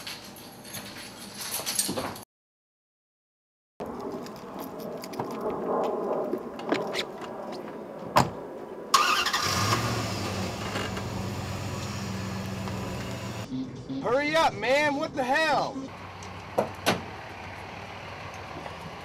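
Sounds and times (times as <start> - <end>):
engine cranking and idling: 9.0 - 13.5.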